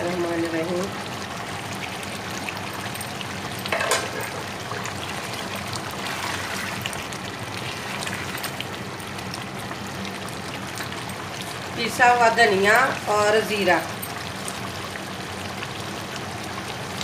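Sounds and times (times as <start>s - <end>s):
curry simmering and popping: 0.0s - 17.0s.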